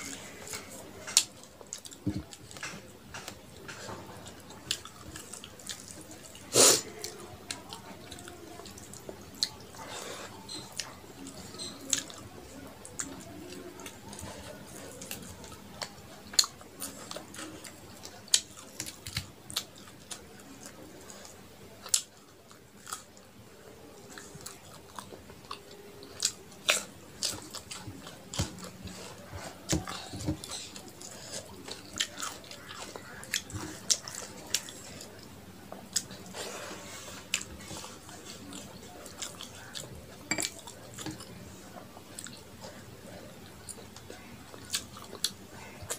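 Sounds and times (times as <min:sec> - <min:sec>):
chewing and wet mouth smacks: 0:24.1 - 0:35.2, 0:35.8 - 0:36.5, 0:43.5 - 0:45.9.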